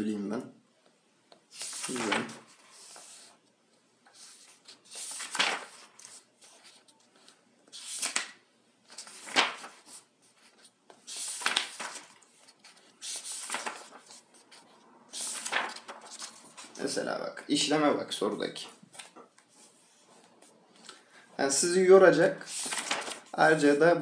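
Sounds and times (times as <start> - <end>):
book pages turning: 1.3 - 3.4, 4.0 - 16.8, 18.6 - 21.0, 22.4 - 23.3
paper rustling swishes: 1.5 - 3.4, 4.1 - 17.0, 22.3 - 23.6.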